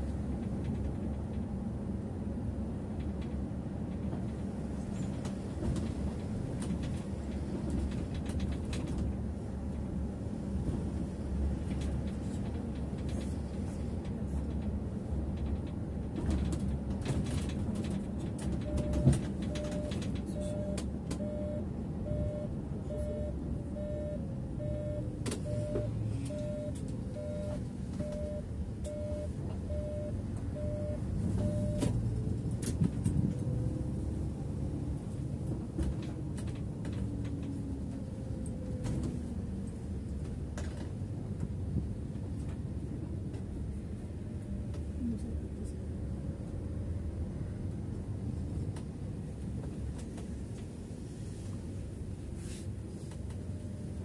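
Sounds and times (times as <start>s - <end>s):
bus engine and road rumble: 0.0s - 54.0s
turn signal beeping: 18.6s - 31.9s.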